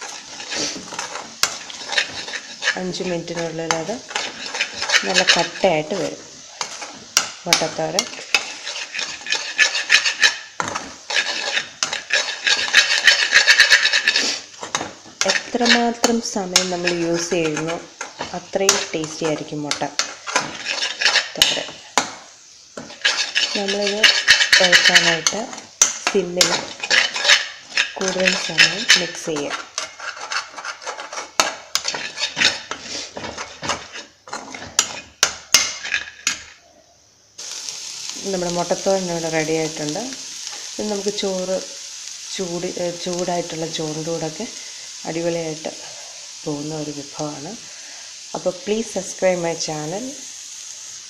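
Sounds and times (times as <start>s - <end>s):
spoon scraping metal pan: 0.0s - 36.6s.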